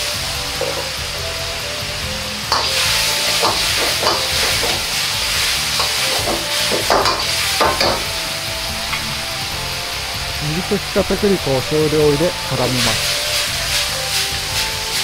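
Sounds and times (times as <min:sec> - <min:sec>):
food sizzling in a wok: 0:00.0 - 0:15.0
metal ladle scraping a wok: 0:02.5 - 0:10.3, 0:12.8 - 0:15.0.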